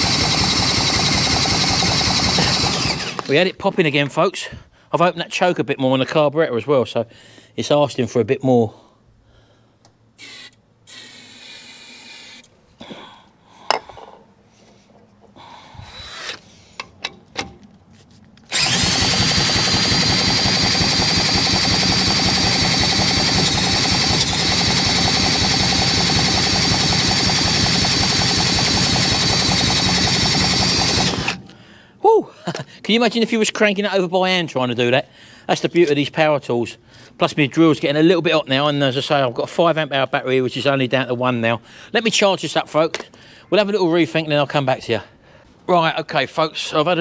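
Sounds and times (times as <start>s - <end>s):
engine turning over rhythmically: 0.0s - 3.3s, 18.5s - 31.4s
cordless drill whine: 0.0s - 3.4s, 18.5s - 31.5s.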